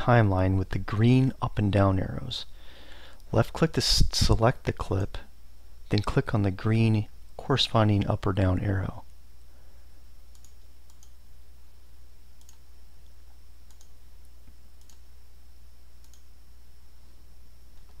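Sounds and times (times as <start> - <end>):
faint high whine: 0.0 - 18.0
steady low hum: 0.0 - 18.0
computer mouse clicking: 10.3 - 11.2, 12.4 - 12.6, 13.7 - 15.0, 16.0 - 16.3.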